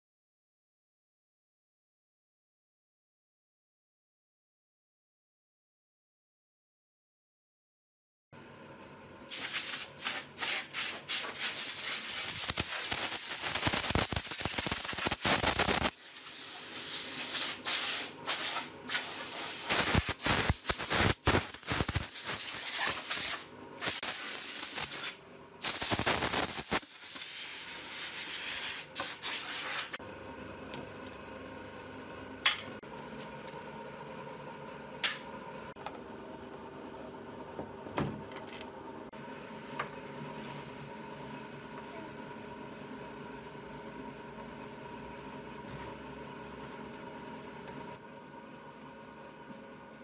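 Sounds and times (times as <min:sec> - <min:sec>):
spray gun hissing: 0:09.3 - 0:30.0.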